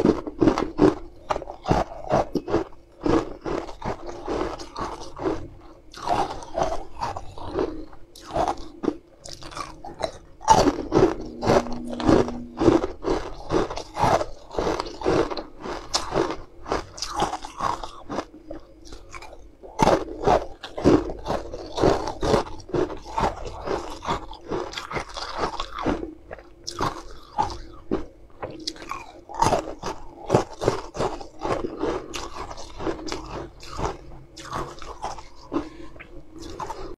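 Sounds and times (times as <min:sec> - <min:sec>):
ice being chewed crunching: 0:00.0 - 0:36.9.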